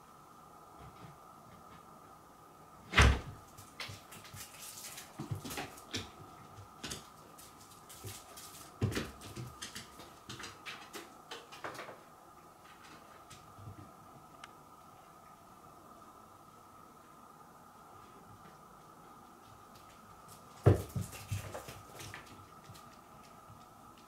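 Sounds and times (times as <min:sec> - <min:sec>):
scratches taps and rustles: 0:03.5 - 0:12.1.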